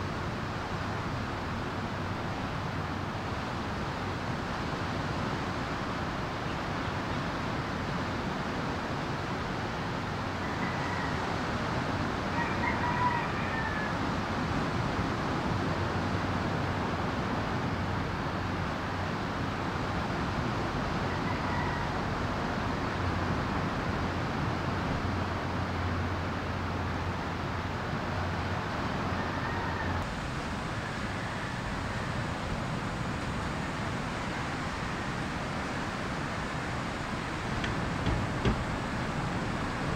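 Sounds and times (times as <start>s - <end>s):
ocean surf breaking: 30.0s - 39.9s.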